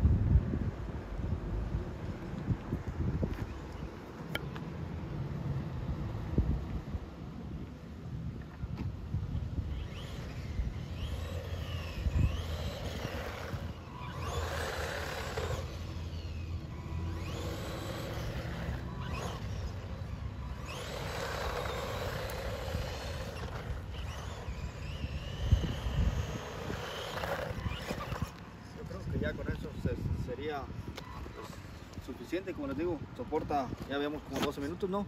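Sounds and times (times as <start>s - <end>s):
rc truck electric motor whining: 9.3s - 32.4s.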